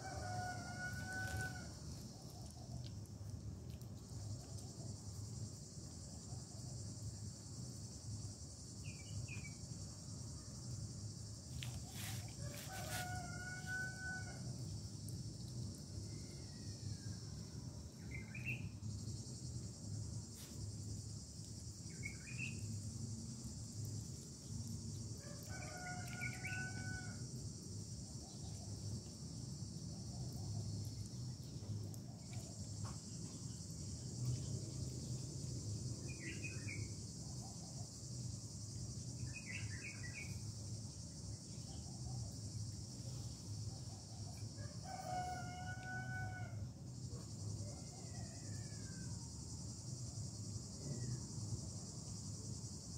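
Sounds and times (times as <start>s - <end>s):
rooster crowing: 0.0s - 1.8s, 12.0s - 14.6s, 25.2s - 27.3s, 44.6s - 46.7s, 47.6s - 49.2s
insects droning: 0.0s - 52.9s.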